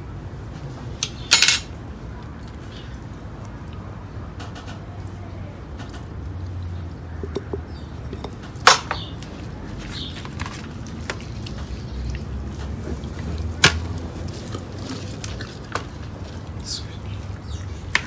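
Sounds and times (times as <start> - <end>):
hands rubbing wet raw chicken: 9.2 - 18.0.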